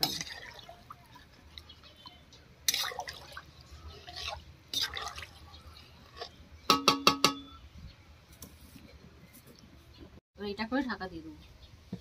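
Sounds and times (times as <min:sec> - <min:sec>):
metal striking metal: 0:06.7 - 0:07.6.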